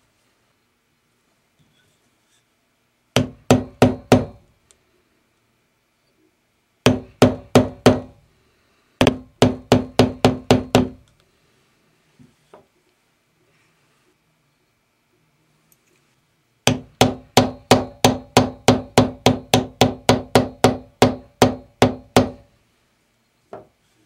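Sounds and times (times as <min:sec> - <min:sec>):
mallet striking metal stamping tool: 0:03.2 - 0:04.4, 0:16.7 - 0:22.4.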